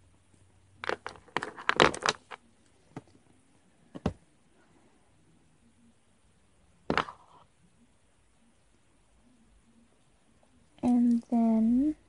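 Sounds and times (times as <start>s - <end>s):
plastic beads clicking and knocking: 0.8s - 2.4s.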